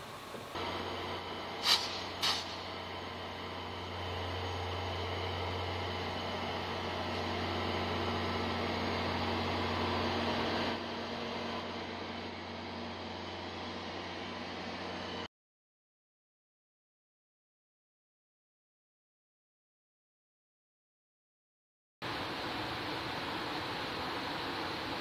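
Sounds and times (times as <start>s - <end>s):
locomotive engines idling: 0.0s - 15.3s, 22.0s - 25.0s.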